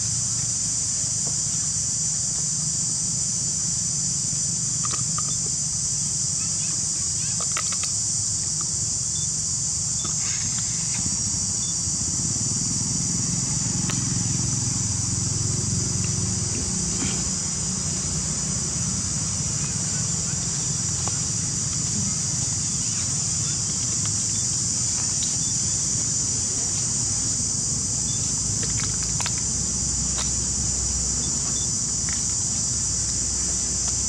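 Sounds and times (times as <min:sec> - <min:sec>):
high-pitched insect chorus: 0:00.0 - 0:34.0.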